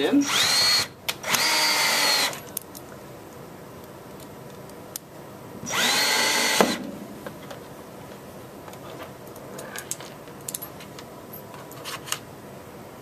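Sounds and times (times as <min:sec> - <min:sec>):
cordless drill motor whine: 0:00.2 - 0:02.4, 0:05.6 - 0:06.8.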